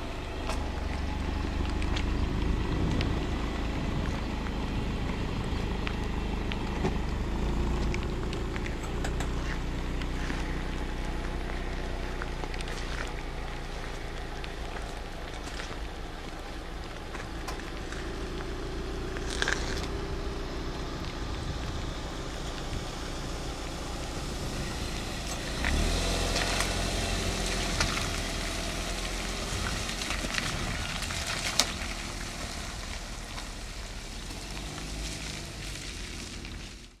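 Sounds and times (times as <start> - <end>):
car driving on wet road: 0.0 - 37.0
steady outdoor rumble: 0.0 - 37.0
sharp clicks and ticks: 5.8 - 10.2.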